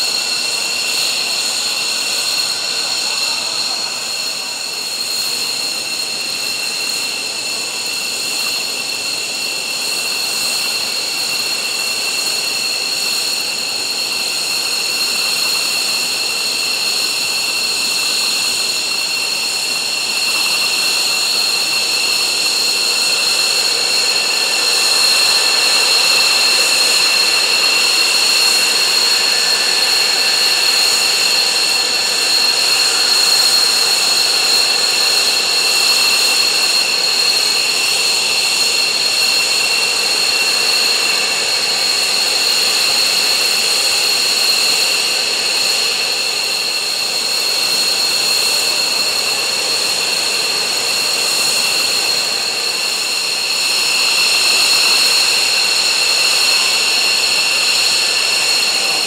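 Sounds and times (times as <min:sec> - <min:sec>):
jet engines idling: 0:00.0 - 0:59.0.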